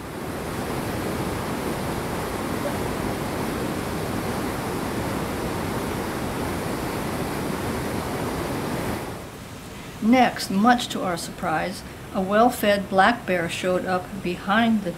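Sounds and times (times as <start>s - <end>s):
creek water rushing over rocks: 0.0s - 9.6s.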